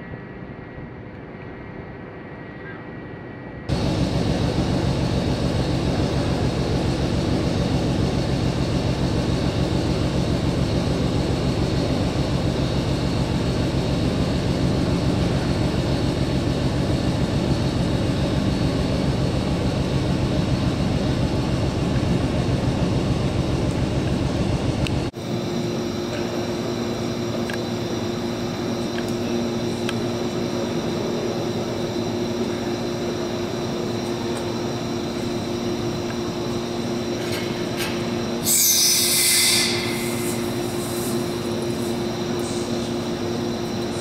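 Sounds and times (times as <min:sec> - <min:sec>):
diesel engine running: 0:03.7 - 0:38.4.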